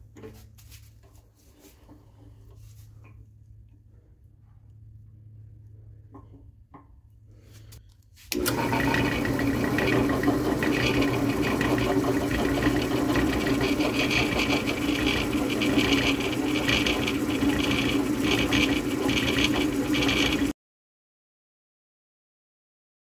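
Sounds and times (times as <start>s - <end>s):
drill bit grinding through metal: 8.3s - 20.5s
drill press motor hum: 8.3s - 20.5s.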